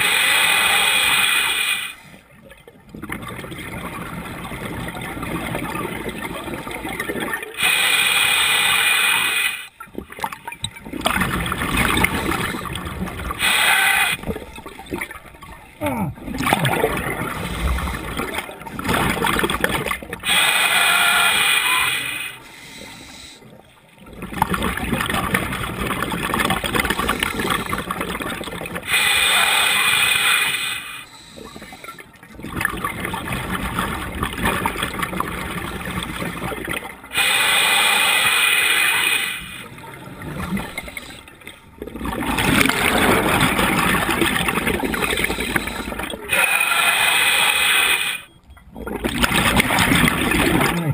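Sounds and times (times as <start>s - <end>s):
gurgling exhaled bubbles: 9.9s - 22.4s, 23.6s - 50.9s
regulator breath hissing: 20.3s - 23.4s, 37.2s - 39.6s, 45.3s - 48.3s.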